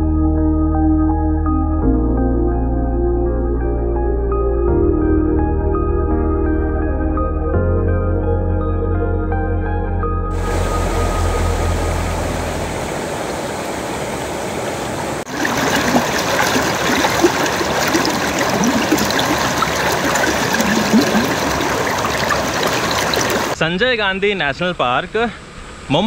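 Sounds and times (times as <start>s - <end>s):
flowing water: 10.3s - 23.6s.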